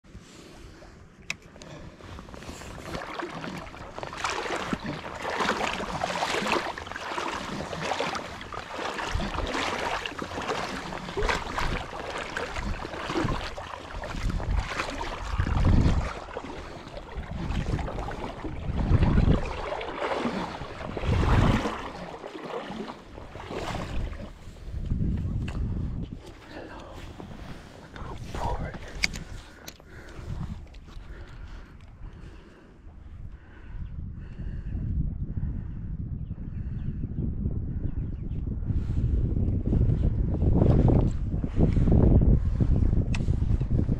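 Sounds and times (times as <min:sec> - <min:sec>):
wind buffeting microphone: 0:01.7 - 0:43.9
river water rushing: 0:04.0 - 0:15.4.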